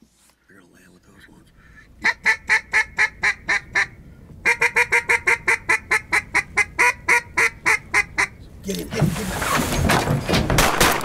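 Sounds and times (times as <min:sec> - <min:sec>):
duck call quacks: 0:02.0 - 0:08.4.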